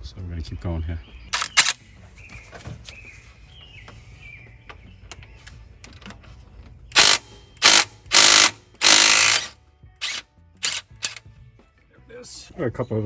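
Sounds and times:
tool handling clicks: 0:01.3 - 0:01.8
cordless impact tool bursts: 0:06.9 - 0:11.2.

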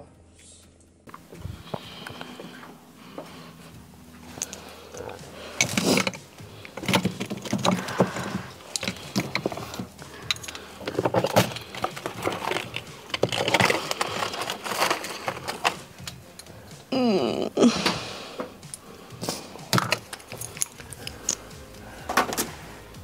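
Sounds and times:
rustling: 0:01.1 - 0:16.9
plastic caps and cases clicking: 0:04.3 - 0:16.9, 0:17.8 - 0:22.6.

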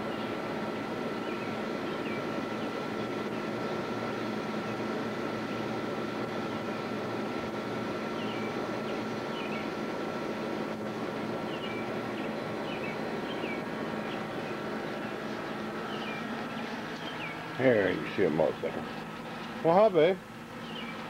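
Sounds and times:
mechanical hum: 0:00.0 - 0:21.0
small birds chirping: 0:01.1 - 0:04.0, 0:08.1 - 0:09.8, 0:11.4 - 0:19.6, 0:20.5 - 0:21.0.

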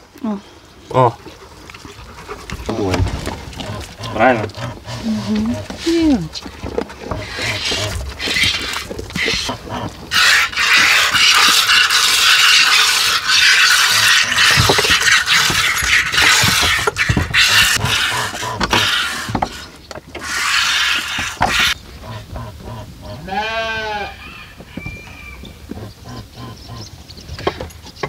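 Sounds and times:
goat bleating: 0:23.1 - 0:24.2.

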